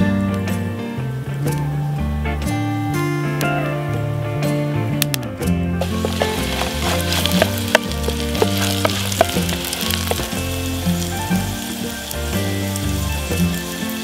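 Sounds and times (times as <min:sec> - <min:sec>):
background music: 0:00.0 - 0:14.0
potato chips sizzling in oil: 0:05.8 - 0:14.0.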